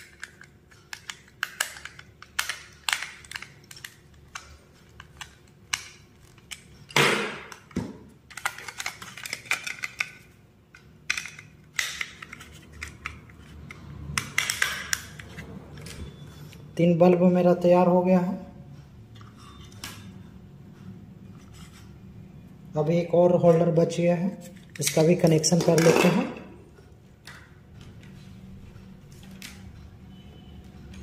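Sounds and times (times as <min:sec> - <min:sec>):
screwdriver scraping and clicking: 0:11.1 - 0:16.6.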